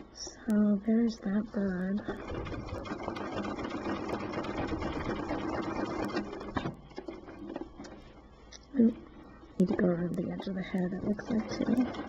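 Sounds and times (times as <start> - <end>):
sewing machine running: 2.0 - 8.2, 10.9 - 12.0.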